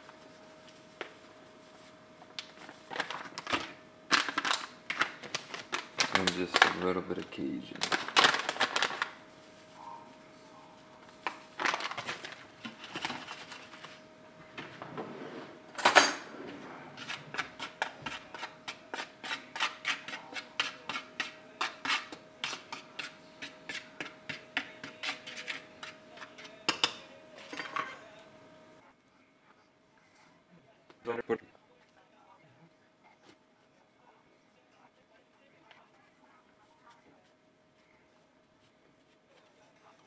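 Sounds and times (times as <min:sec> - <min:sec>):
metal spoon scraping baking sheet: 0:16.2 - 0:26.7.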